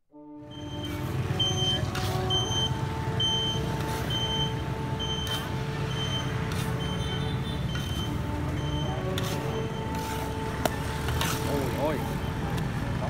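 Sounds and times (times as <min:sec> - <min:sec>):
street traffic hum: 0:00.4 - 0:13.0
metal spatula scraping in wok: 0:00.8 - 0:02.8, 0:03.4 - 0:11.8.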